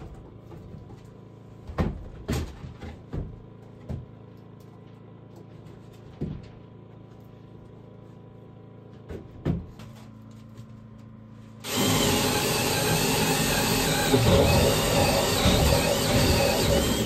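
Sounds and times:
power tool running: 11.6 - 17.0.

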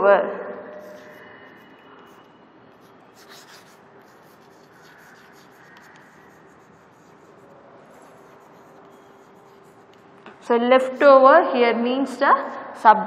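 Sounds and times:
chalk scratching on blackboard: 0.8 - 10.2.

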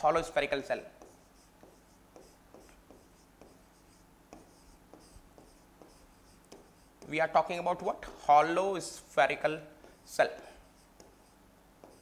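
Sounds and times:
stylus scratching strokes: 0.2 - 7.4, 9.8 - 12.0
stylus tapping on screen: 1.0 - 7.2, 9.8 - 12.0.

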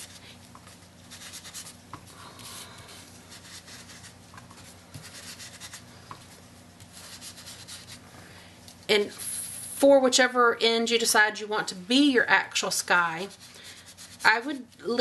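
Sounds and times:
sponge rubbing on card: 0.0 - 8.1, 13.1 - 14.8.

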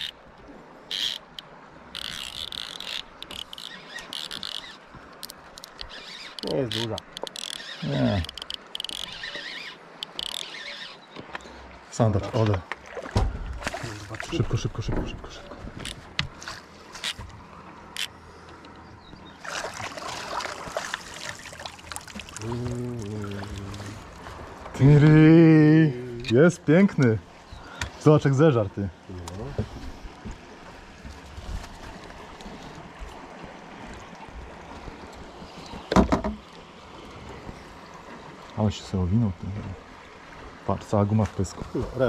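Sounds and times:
fishing reel clicking: 0.9 - 11.0
fish splashing in water: 19.4 - 24.5.

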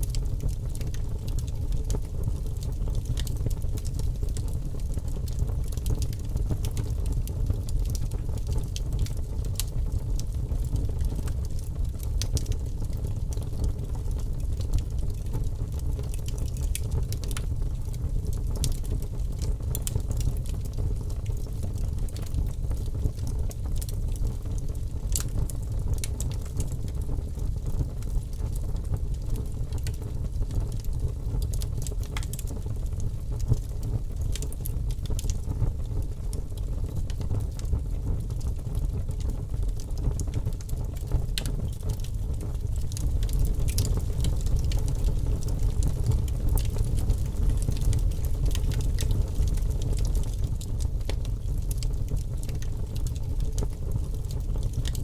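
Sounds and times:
burning wood crackling and popping: 0.0 - 55.0
bonfire flames rushing: 31.7 - 55.0.

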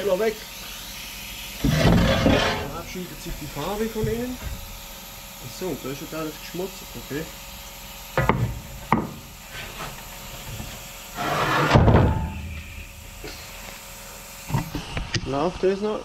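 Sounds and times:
wood and metal scraping: 1.6 - 4.7, 8.2 - 12.8
sharp knocks: 8.2 - 9.2.

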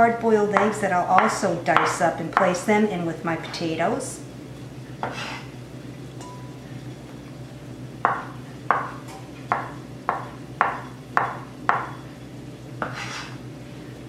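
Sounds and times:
low steady hum: 0.0 - 14.0
knife chopping on cutting board: 5.0 - 5.5, 8.1 - 12.0, 12.8 - 13.4.

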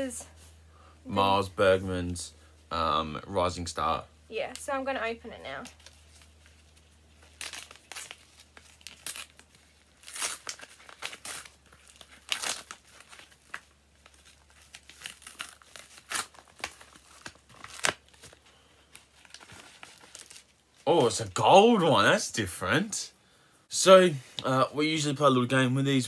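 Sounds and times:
paper envelope tearing and crinkling: 5.6 - 21.2.

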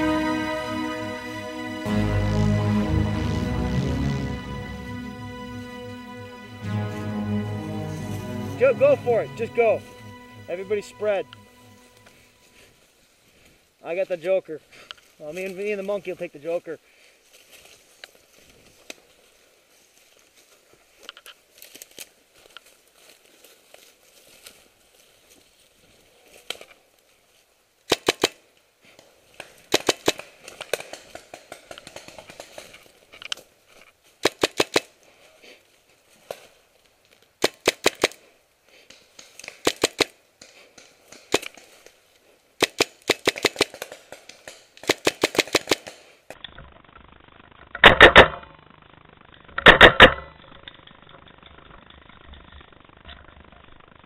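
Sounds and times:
background hiss: 0.0 - 46.4
paintball markers firing: 27.9 - 28.4, 29.4 - 32.7, 34.2 - 34.9, 37.4 - 38.2, 38.8 - 41.8, 42.6 - 46.2.

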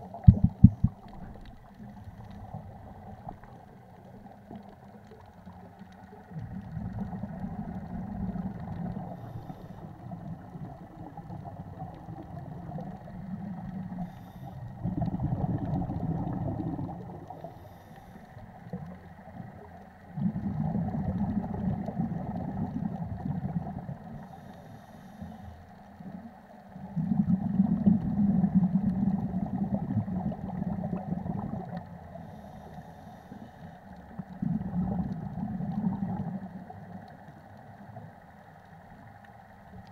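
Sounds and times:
underwater exhaled bubbles: 0.0 - 39.9
faint regulator hisses: 13.9 - 14.7, 17.4 - 18.6, 24.2 - 25.8, 32.1 - 33.9.

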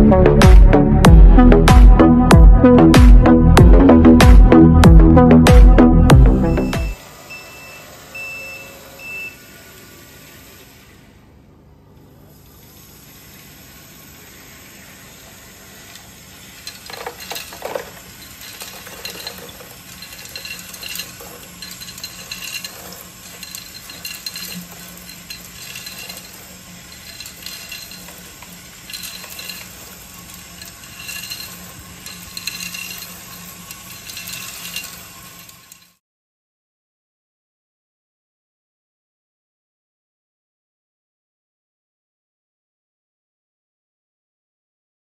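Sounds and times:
mixer drum drive humming: 0.0 - 36.0
short high squeak: 7.2 - 9.5
small stones clattering: 16.5 - 35.8.

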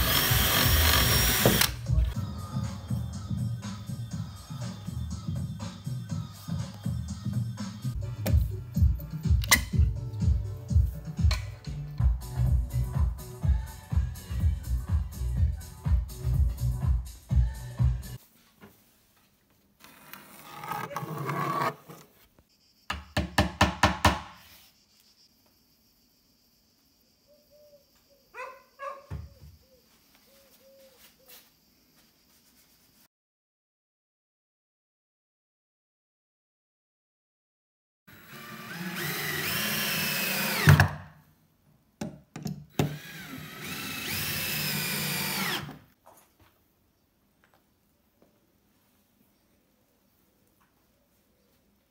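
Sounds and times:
cordless drill motor whine: 0.0 - 1.7, 38.1 - 40.8, 42.7 - 45.8
hammer striking nails into plywood: 22.9 - 24.4.

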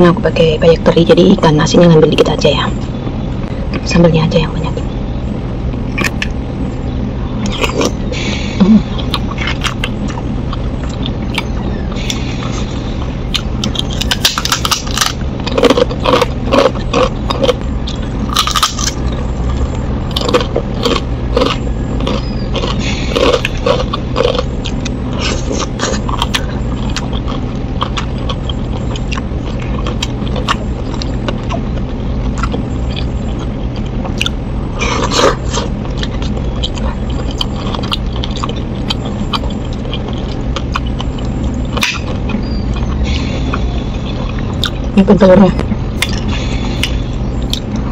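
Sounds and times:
steady low hum: 0.0 - 47.9
chewing: 7.4 - 8.0, 8.7 - 45.0, 46.0 - 47.9
crunching fried cracker: 13.3 - 42.9.

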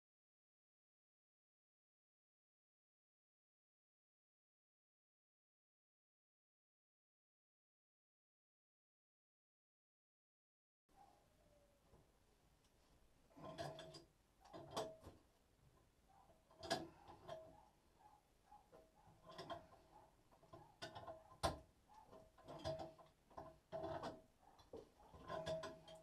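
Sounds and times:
metallic clicks and knocks: 13.3 - 15.2, 16.2 - 17.7, 18.6 - 26.0.

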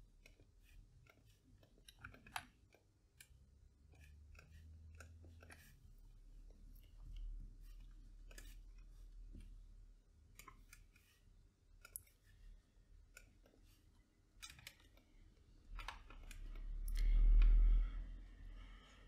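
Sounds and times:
low steady hum: 0.0 - 19.0
computer mouse clicks: 15.7 - 17.6.

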